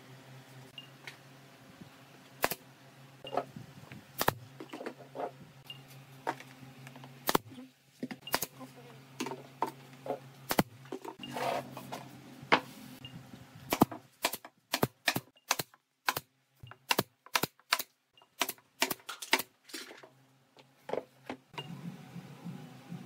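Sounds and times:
nail gun firing: 2.4s - 2.6s, 4.2s - 4.4s, 7.2s - 7.5s, 8.3s - 8.6s, 10.5s - 10.7s, 13.7s - 19.5s.

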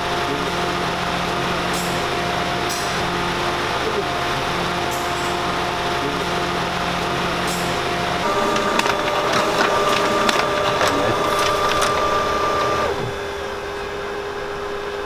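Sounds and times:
printer humming: 0.0s - 13.8s
printer whine: 0.0s - 14.1s
printer clicks: 8.2s - 13.2s.

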